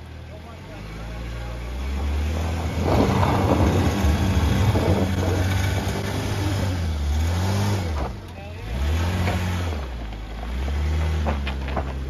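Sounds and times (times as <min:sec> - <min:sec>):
car engine pulling under load: 0:00.0 - 0:12.0
tyres spinning in loose dirt: 0:02.3 - 0:06.7, 0:07.7 - 0:12.0.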